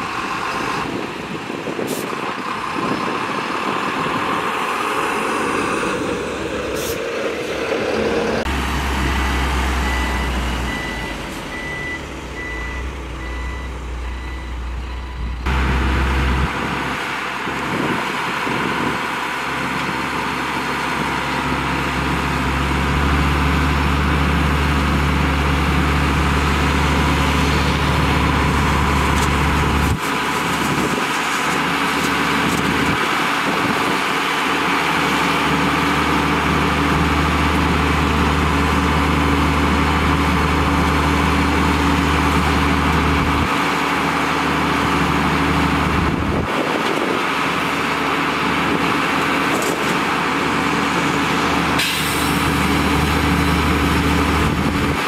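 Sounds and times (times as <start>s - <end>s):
heavy diesel engine running: 0.0s - 55.0s
reversing alarm beeping: 9.0s - 15.6s.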